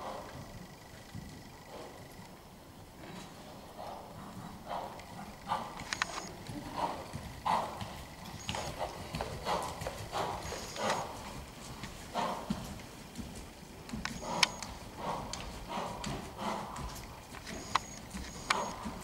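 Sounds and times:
horse hoofbeats on sand: 0:03.1 - 0:19.0.

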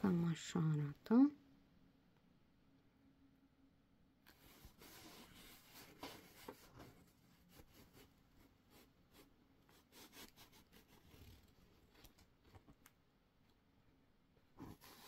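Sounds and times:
faint soft clicks and rustles: 0:11.1 - 0:13.7.

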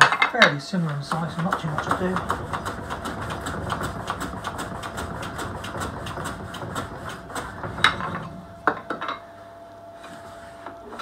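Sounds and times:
hand plane strokes on wood: 0:01.1 - 0:08.2
sharp knocks: 0:01.1 - 0:09.0.

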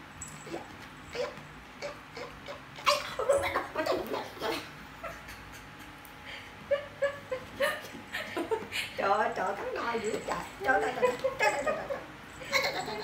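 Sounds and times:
puppy whining and yipping: 0:00.2 - 0:03.6.

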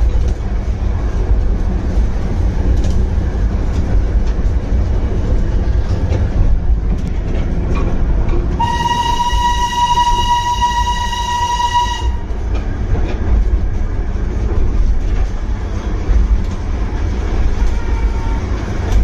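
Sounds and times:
train rumbling and rattling: 0:00.0 - 0:19.0
steam locomotive whistle: 0:08.6 - 0:12.3.

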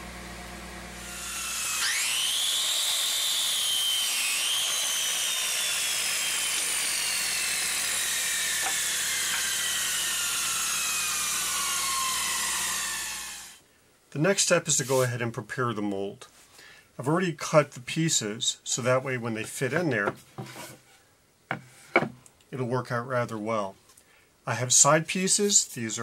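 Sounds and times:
miter saw cutting wood: 0:00.0 - 0:13.6.

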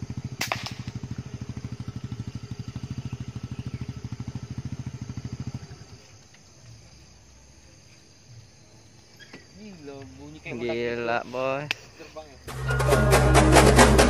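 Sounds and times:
motorcycle engine idling: 0:00.0 - 0:09.1.

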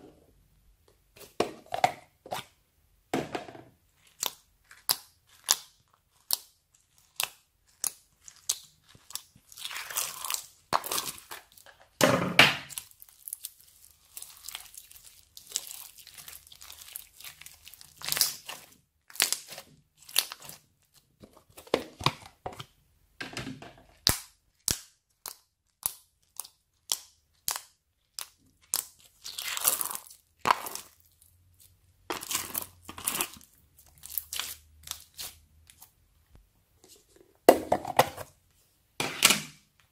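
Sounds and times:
slime popping and squelching: 0:04.0 - 0:22.2, 0:23.9 - 0:35.9.

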